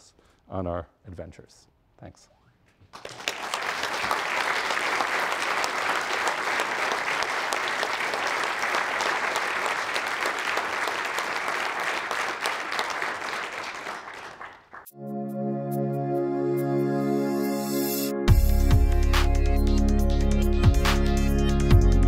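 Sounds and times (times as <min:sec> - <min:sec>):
audience applauding: 0:02.9 - 0:14.9.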